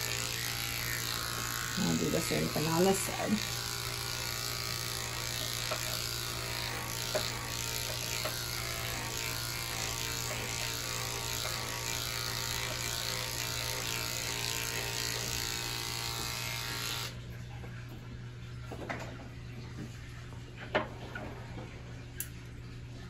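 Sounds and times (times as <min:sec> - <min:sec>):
electric clippers humming: 0:00.0 - 0:17.3.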